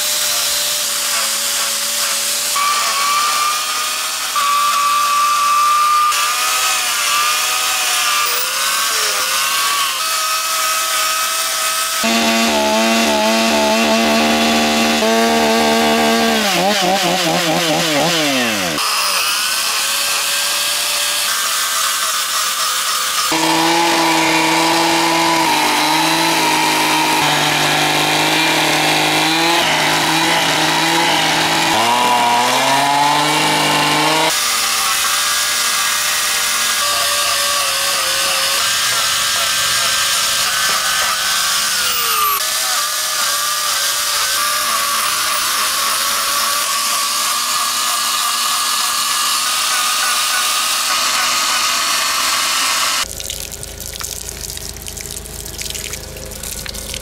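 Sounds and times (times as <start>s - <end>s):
chainsaw cutting wood: 0.0s - 53.1s.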